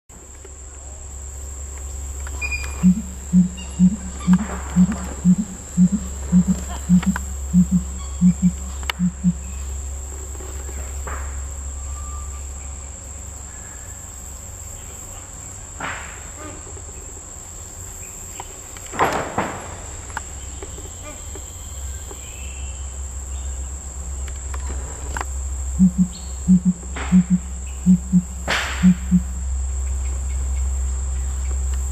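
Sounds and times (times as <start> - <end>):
high insect drone: 0.1 - 31.9
pigeon booming call: 2.7 - 9.5, 25.8 - 29.4.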